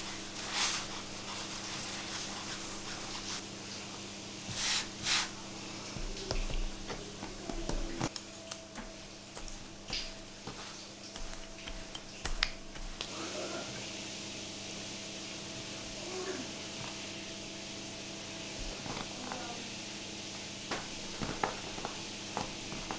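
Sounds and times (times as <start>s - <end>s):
dough swishes: 0.0s - 3.5s, 4.4s - 8.1s, 8.8s - 13.4s.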